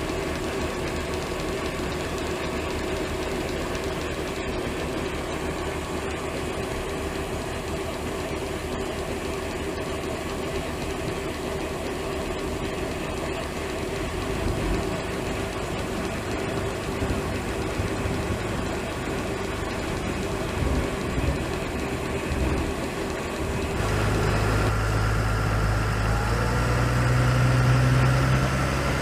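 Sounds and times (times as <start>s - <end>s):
tractor engine: 0.0s - 29.0s
grain auger pouring grain: 11.2s - 29.0s.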